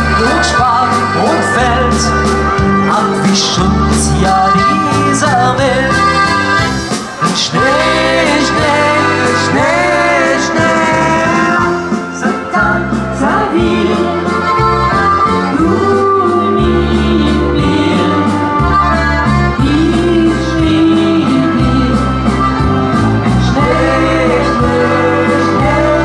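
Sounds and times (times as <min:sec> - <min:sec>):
steady bass line: 0:00.0 - 0:26.0
woman singing: 0:15.4 - 0:18.6, 0:19.5 - 0:22.2, 0:23.4 - 0:26.0.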